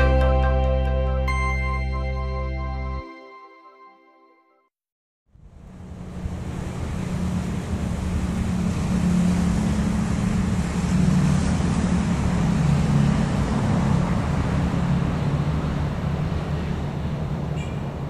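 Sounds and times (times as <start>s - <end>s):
diesel locomotive engine humming: 5.4s - 18.0s
train rushing noise: 5.6s - 18.0s.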